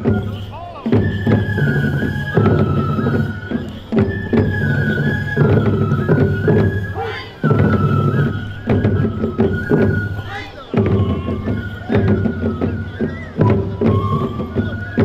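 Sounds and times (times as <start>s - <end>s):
bamboo flute melody: 0.0s - 15.0s
taiko drumming: 0.0s - 15.0s.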